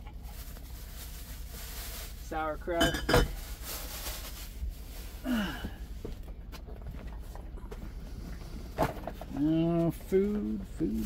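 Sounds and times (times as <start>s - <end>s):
faint rustling: 0.1s - 2.4s, 3.3s - 11.0s
low grunt: 5.3s - 5.8s.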